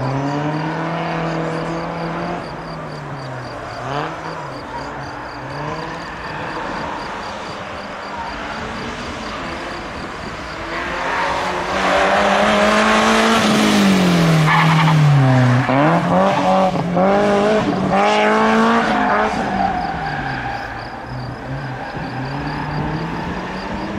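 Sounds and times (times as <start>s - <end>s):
tyres squealing: 0.0s - 11.6s
car engine revving hard: 0.0s - 23.9s.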